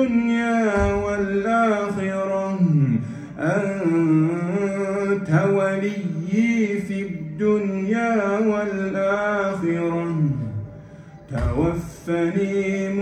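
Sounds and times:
man chanting melodically: 0.0s - 13.0s.

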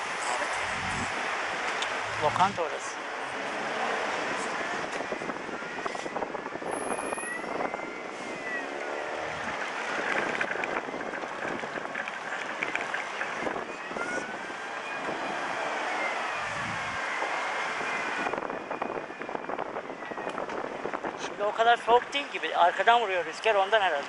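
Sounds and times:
passing cars and buses: 0.0s - 24.0s
whining tone rising and falling: 3.4s - 11.9s.

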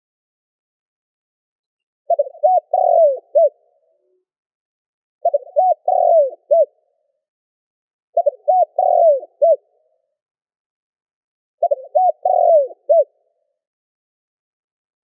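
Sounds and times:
dove cooing: 2.1s - 4.2s, 5.2s - 6.8s, 8.2s - 9.7s, 11.6s - 13.2s.

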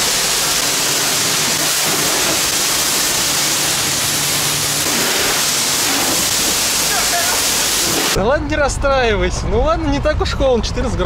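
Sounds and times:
pressure washer spraying water: 0.0s - 8.2s.

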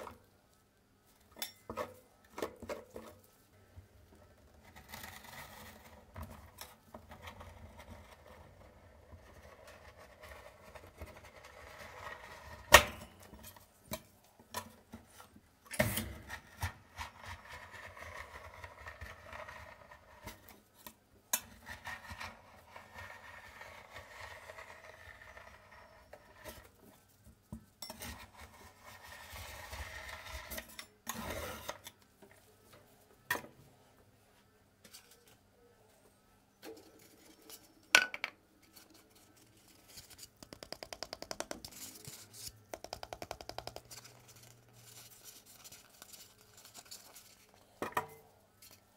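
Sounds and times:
spatula scraping ice cream on pan: 16.2s - 20.6s, 21.3s - 26.8s, 27.8s - 31.8s.

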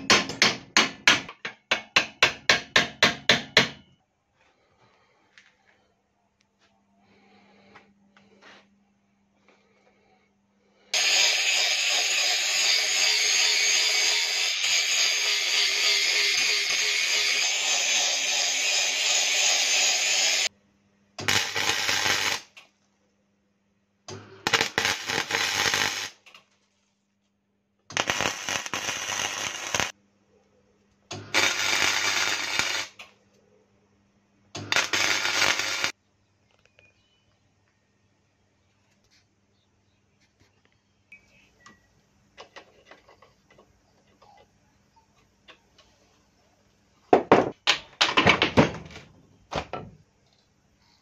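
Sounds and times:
welder arc crackling: 11.0s - 20.5s, 21.2s - 22.6s, 24.1s - 26.4s, 27.9s - 30.0s, 31.1s - 33.1s, 34.6s - 36.0s.

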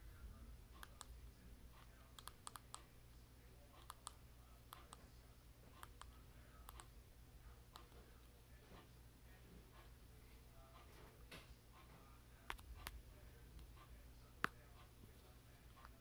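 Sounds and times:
steady low hum: 0.0s - 16.0s
faint irregular clicks: 0.8s - 3.0s, 3.7s - 5.1s, 5.7s - 7.0s, 7.7s - 8.3s.

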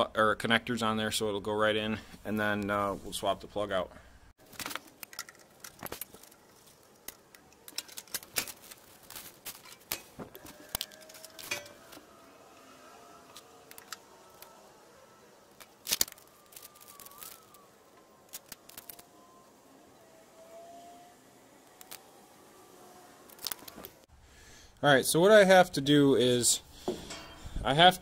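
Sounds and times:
clicks and rattles of wires: 4.4s - 12.1s, 13.3s - 14.5s, 15.4s - 19.1s, 21.7s - 22.0s, 23.3s - 24.0s.

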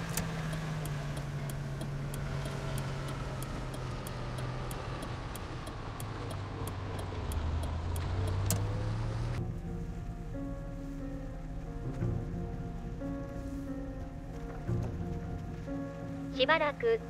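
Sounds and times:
turn signal ticking: 0.0s - 10.5s
car engine drone from inside: 0.0s - 17.0s.

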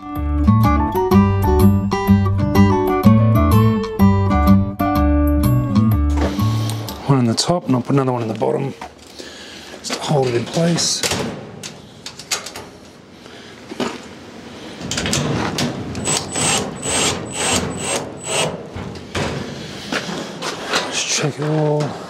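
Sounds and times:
cordless drill driving screws: 16.0s - 18.5s.

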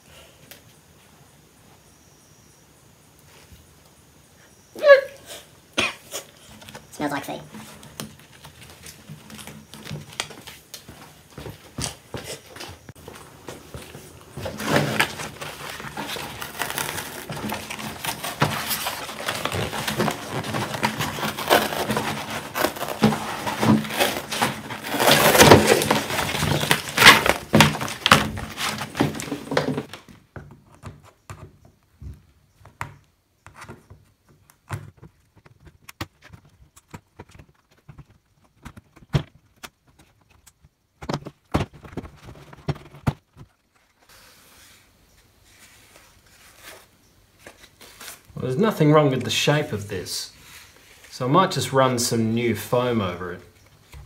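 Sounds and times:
vinyl peeling and tearing: 12.3s - 29.9s, 45.5s - 48.3s.

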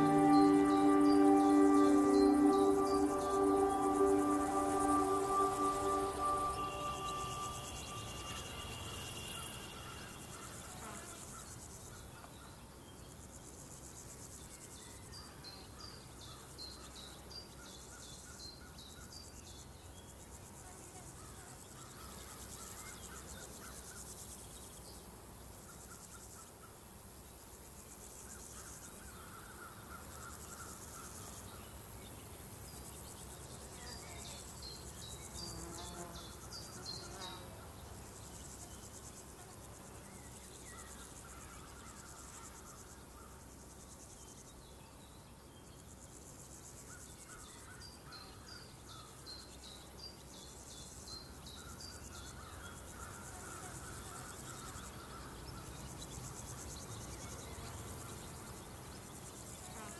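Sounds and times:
held music note: 0.0s - 9.2s
high insect drone: 0.0s - 11.8s
crickets chirping: 0.0s - 12.1s, 27.2s - 59.9s.

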